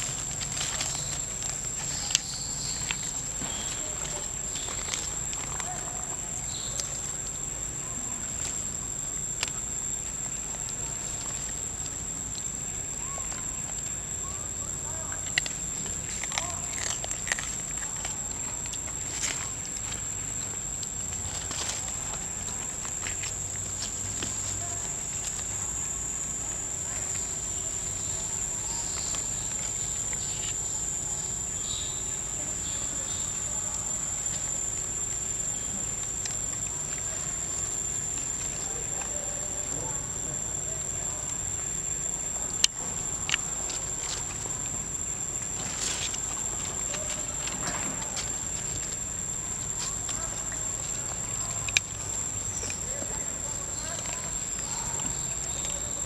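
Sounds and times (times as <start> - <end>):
rustling in dry leaf litter: 0.0 - 8.8, 14.9 - 35.9
insects droning: 0.0 - 56.0.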